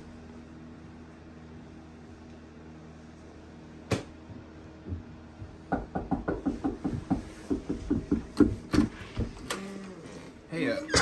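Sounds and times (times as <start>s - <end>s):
steady low hum: 0.0s - 11.0s
rapid short knocks: 4.8s - 9.4s.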